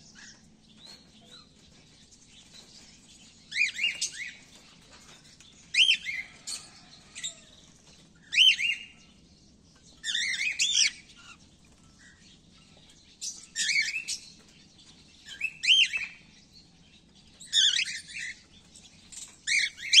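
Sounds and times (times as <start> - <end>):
cockatiels chirping: 8.3 - 8.9, 10.0 - 11.4, 13.2 - 14.2, 17.4 - 18.4.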